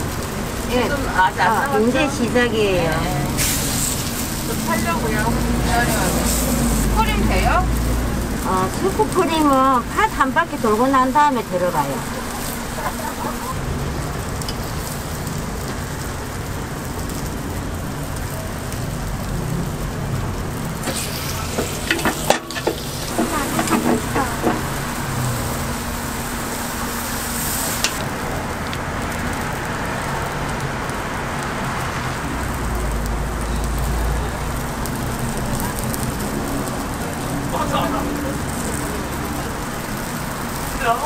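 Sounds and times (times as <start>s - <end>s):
batter sizzling in molds: 0.0s - 41.0s
metal clanks and clicks: 21.5s - 24.8s.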